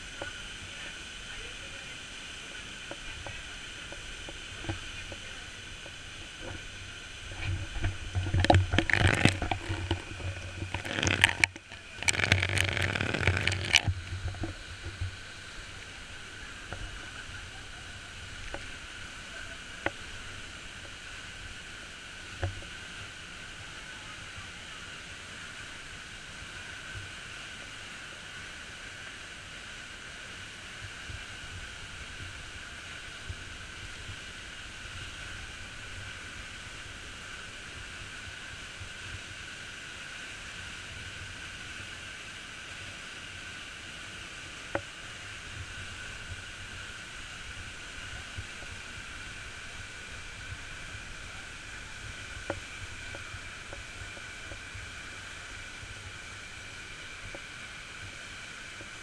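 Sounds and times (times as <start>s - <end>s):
waterfall roaring: 0.0s - 39.2s.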